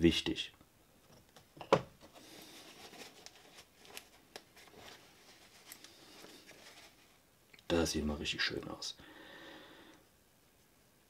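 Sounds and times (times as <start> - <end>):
cloth rustling: 2.1 - 7.2.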